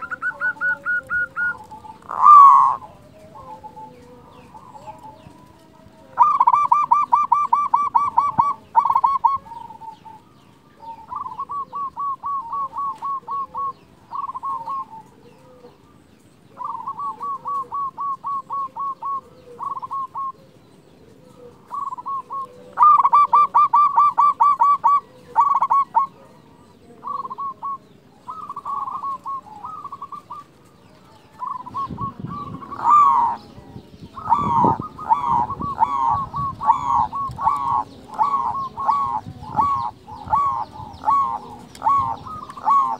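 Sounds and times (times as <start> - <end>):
rough rising bird calls: 0.0 - 5.5, 21.3 - 42.9
dove cooing: 0.0 - 42.9.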